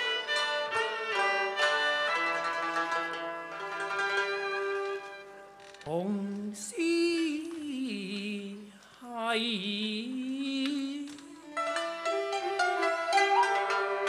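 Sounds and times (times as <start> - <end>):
instrumental accompaniment: 0.0 - 6.5, 11.0 - 14.0
person singing opera: 5.8 - 14.0.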